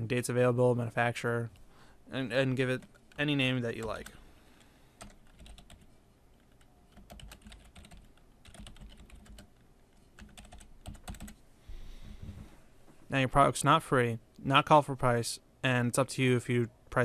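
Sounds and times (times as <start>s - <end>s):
typing on computer keyboard: 5.0s - 9.6s, 10.2s - 11.4s.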